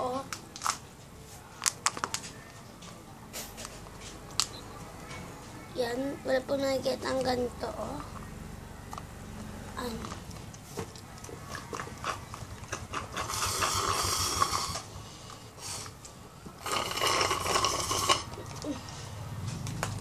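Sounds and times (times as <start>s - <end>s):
slurping through a straw: 12.0s - 14.9s, 16.6s - 18.4s.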